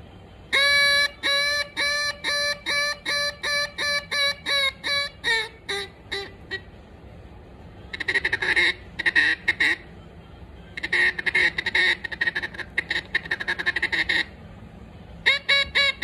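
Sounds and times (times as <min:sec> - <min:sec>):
duck call quacking: 0:00.5 - 0:06.7, 0:07.9 - 0:09.9, 0:10.8 - 0:14.4, 0:15.2 - 0:16.0.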